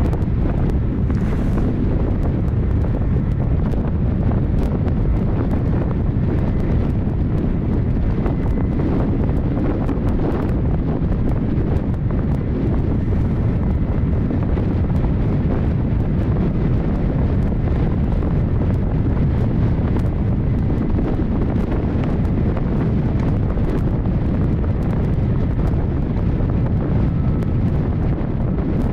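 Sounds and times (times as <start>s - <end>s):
wind buffeting microphone: 0.0s - 28.9s
water breaking along hull: 0.1s - 6.9s.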